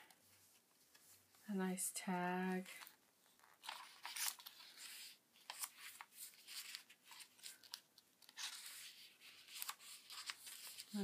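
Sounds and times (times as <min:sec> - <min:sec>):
paper rustling: 0:02.7 - 0:11.0.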